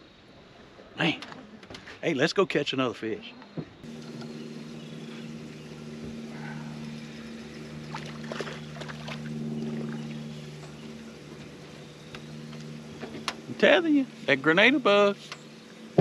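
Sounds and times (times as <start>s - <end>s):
electric trolling motor hum: 3.8s - 16.0s.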